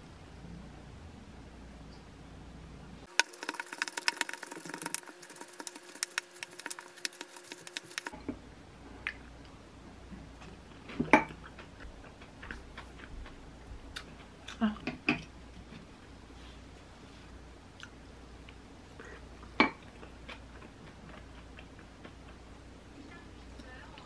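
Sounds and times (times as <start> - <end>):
wooden spoon scraping glass bowl: 3.2 - 8.1.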